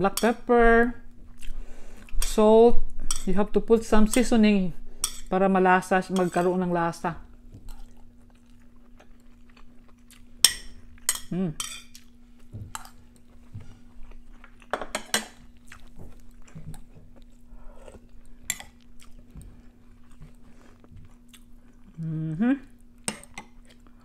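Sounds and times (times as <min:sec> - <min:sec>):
chewing: 0:07.6 - 0:11.1, 0:11.9 - 0:14.7, 0:15.3 - 0:22.1, 0:22.7 - 0:24.0
person humming mm: 0:11.3 - 0:11.6, 0:21.9 - 0:22.8.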